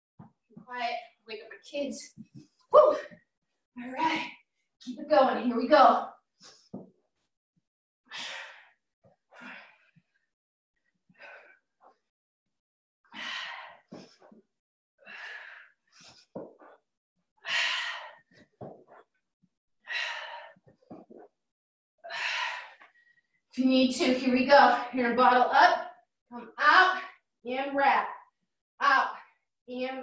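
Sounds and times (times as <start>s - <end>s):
woman breathing hard: 19.8s - 20.8s.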